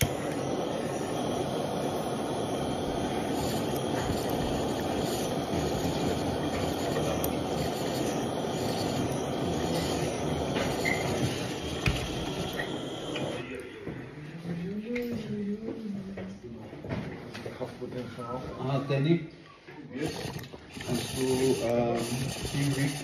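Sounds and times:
butane torch hissing: 0:00.0 - 0:13.7, 0:19.9 - 0:23.0.

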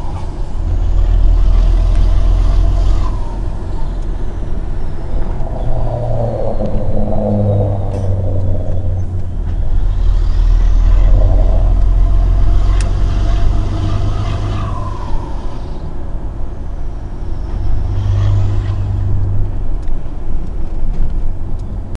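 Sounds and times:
truck diesel engine rumble: 0:00.0 - 0:21.9
faint whistle: 0:02.0 - 0:15.9.

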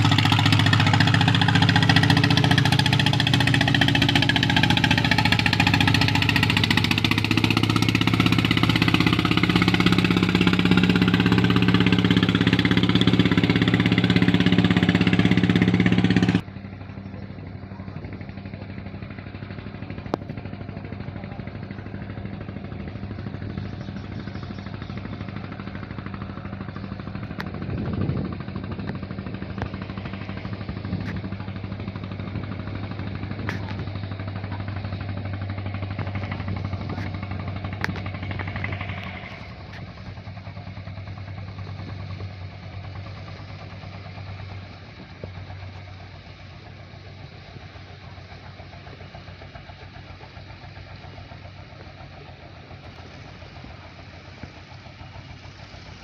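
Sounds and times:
boat engine humming: 0:00.0 - 0:56.0.

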